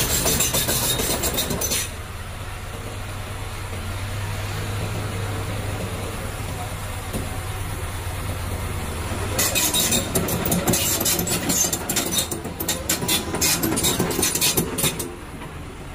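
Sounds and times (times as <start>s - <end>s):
crawler tracks clanking: 0.0s - 2.0s, 4.7s - 15.6s
excavator diesel engine running: 0.0s - 15.9s.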